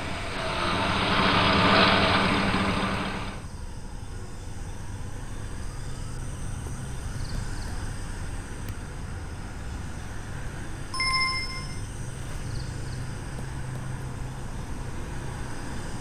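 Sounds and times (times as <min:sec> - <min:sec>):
low background rumble: 0:00.0 - 0:03.5
short bell-like ding: 0:11.0 - 0:11.9.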